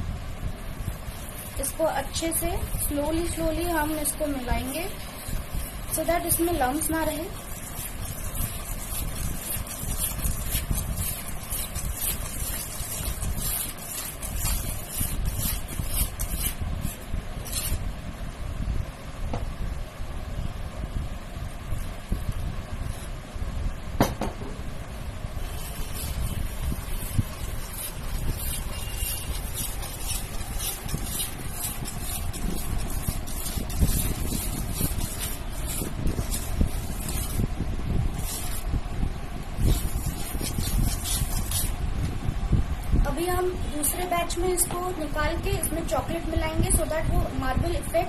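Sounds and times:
whisk scraping bowl: 0.9 - 17.8, 25.4 - 38.7, 39.6 - 41.8.

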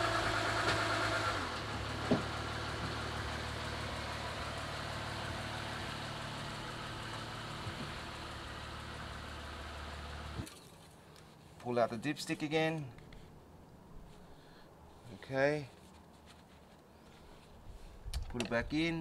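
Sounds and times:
car engine idling: 0.0 - 10.4.

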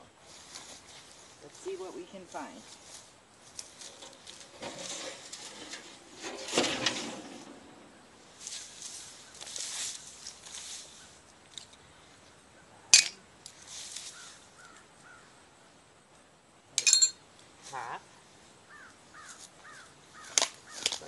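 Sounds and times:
faint bird calls: 14.0 - 15.5, 17.7 - 21.0
metal or glass clink: 16.8 - 17.2.

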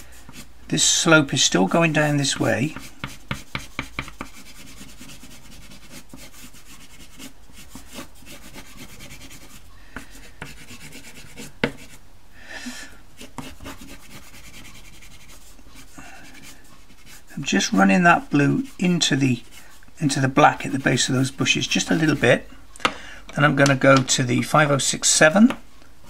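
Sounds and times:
pastel stick scratching on paper: 0.0 - 0.5, 2.1 - 12.0, 13.2 - 22.5.

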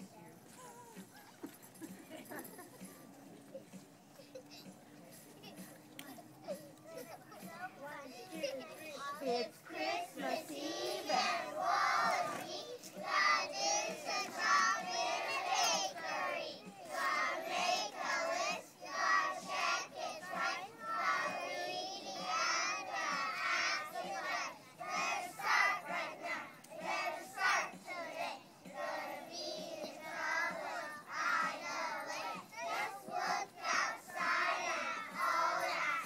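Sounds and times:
children chanting in unison: 9.7 - 36.0.

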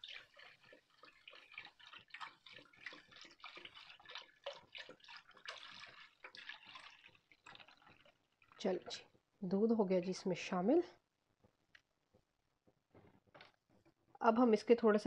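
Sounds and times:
milk pouring into metal pot: 0.0 - 9.3.

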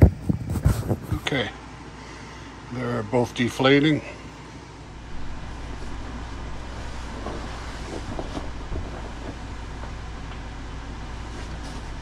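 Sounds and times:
air bed pump hum: 0.0 - 12.0
foam panel rustling and knocking: 6.9 - 9.5.

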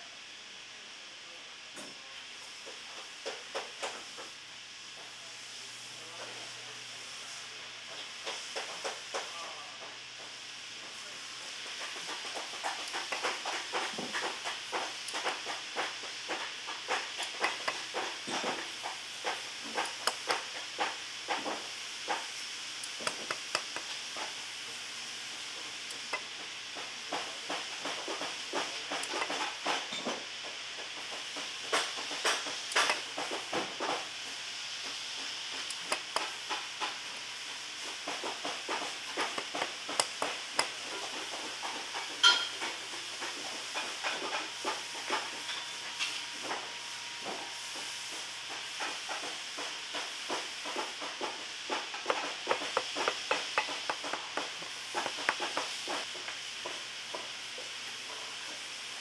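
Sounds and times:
steady hiss: 0.0 - 59.0
hand tools clicking and scraping: 11.7 - 24.4, 25.6 - 30.2, 30.8 - 34.1, 35.5 - 37.0, 37.8 - 47.4, 48.8 - 57.2
sharp metallic ping: 42.2 - 42.5.

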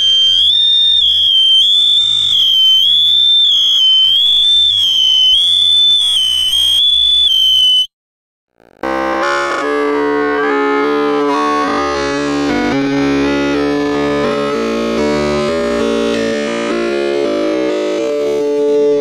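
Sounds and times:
shrill wavering electronic tone: 0.0 - 7.9, 8.8 - 18.9
synthesizer keyboard music: 8.8 - 19.0.

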